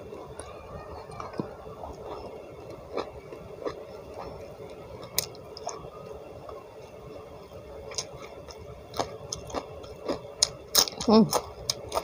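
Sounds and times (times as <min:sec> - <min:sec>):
wet chewing: 0:07.9 - 0:12.0
crisp clicks of crunching: 0:08.0 - 0:12.0.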